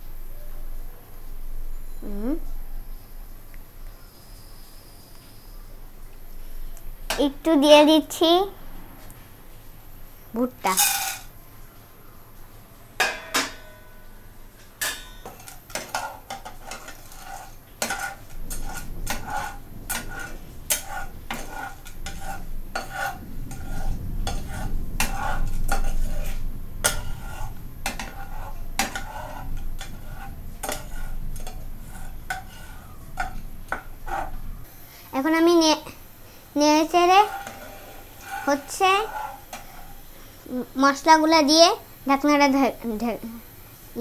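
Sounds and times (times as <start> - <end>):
metal spatula scraping wok: 10.7 - 11.3, 14.8 - 34.8, 36.7 - 40.4
pan ringing: 13.0 - 15.4.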